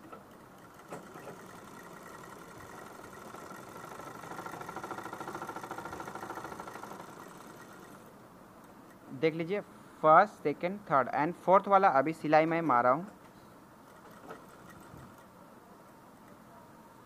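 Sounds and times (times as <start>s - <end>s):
sewing machine stitching: 0.0s - 8.1s, 13.8s - 15.3s.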